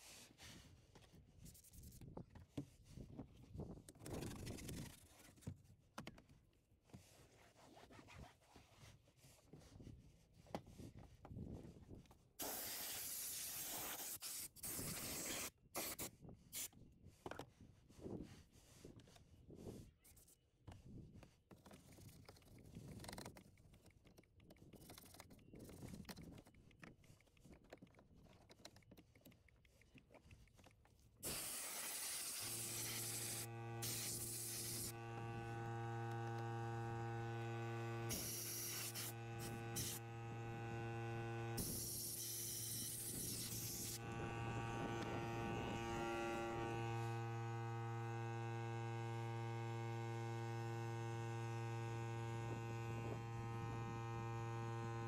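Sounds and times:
hiss: 0:12.4 - 0:16.7, 0:31.2 - 0:34.9, 0:38.1 - 0:39.1, 0:41.6 - 0:44.0
brush rubbing on plastic: 0:31.2 - 0:35.1, 0:38.1 - 0:40.0, 0:41.6 - 0:44.2
steady electric hum: 0:31.2 - 0:55.0.

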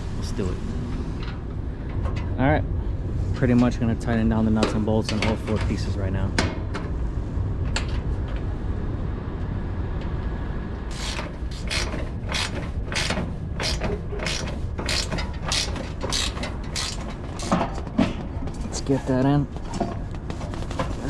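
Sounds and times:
ratchet wrench clicking: 0:10.9 - 0:17.6.

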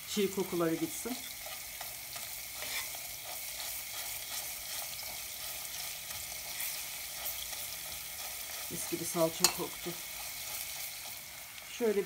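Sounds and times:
oil sizzling in a pot: 0:00.0 - 0:12.0
metal spoon scraping a pot: 0:00.8 - 0:07.6.

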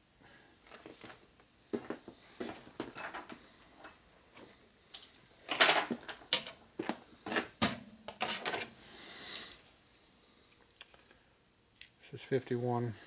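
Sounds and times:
metal parts clinking on workbench: 0:04.9 - 0:06.6.

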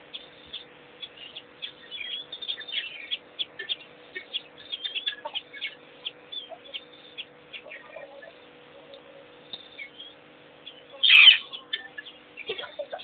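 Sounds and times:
faint steady hum: 0:00.0 - 0:13.0
small birds chirping: 0:00.0 - 0:13.0.

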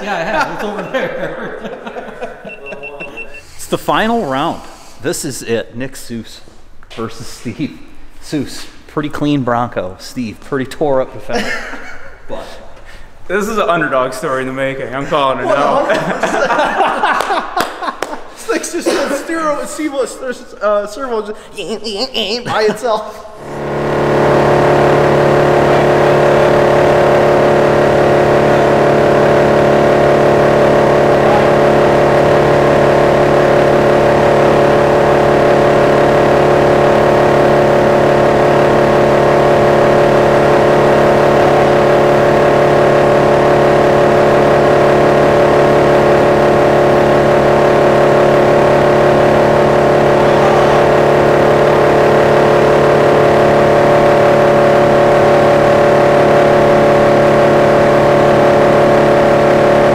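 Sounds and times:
wood chipper engine droning: 0:23.4 - 0:59.9.

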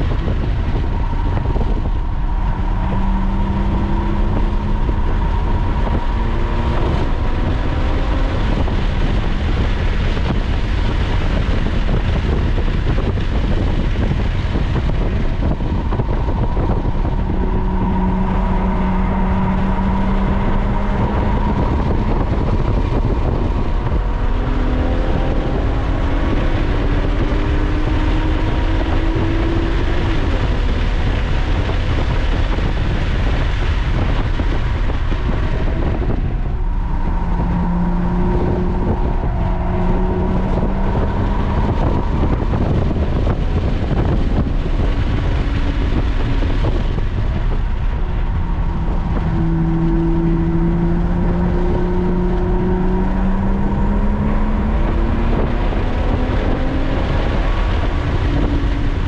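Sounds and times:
sports car engine revving: 0:00.0 - 0:59.0
wind and road noise: 0:00.0 - 0:59.0.

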